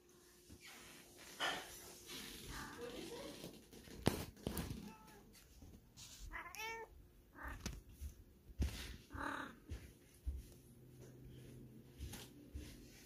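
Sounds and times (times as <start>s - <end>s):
cat meowing: 6.3s - 7.7s.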